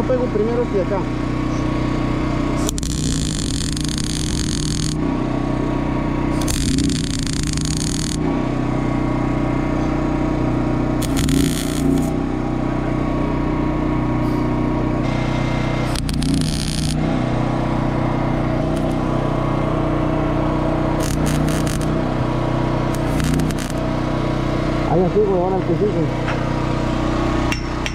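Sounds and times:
engine drone: 0.0s - 27.9s
welding arc crackling: 2.6s - 5.1s, 6.2s - 8.3s, 11.0s - 12.2s, 15.0s - 19.3s, 20.6s - 23.9s.

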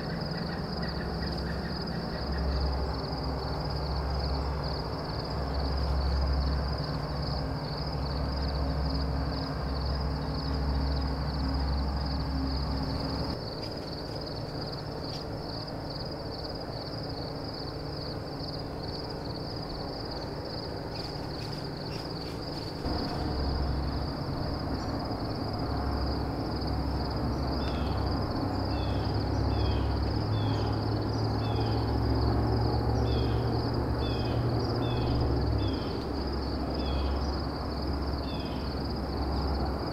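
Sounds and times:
high-pitched insect chorus: 0.0s - 39.9s
low rumble: 22.8s - 27.4s.

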